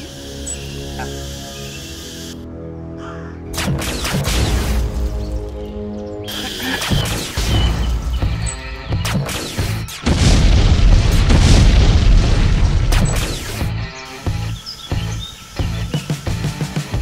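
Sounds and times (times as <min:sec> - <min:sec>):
action film music: 0:00.0 - 0:17.0
explosions: 0:09.0 - 0:13.7.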